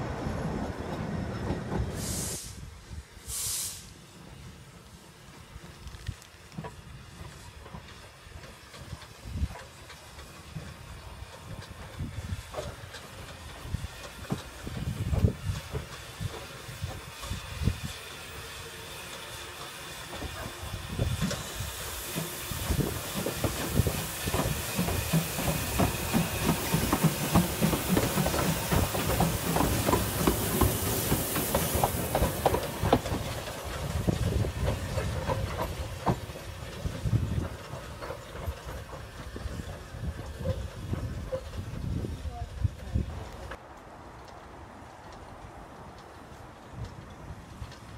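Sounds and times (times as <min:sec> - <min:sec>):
steam locomotive hissing: 0:00.0 - 0:43.6
locomotive knocking: 0:19.6 - 0:42.0.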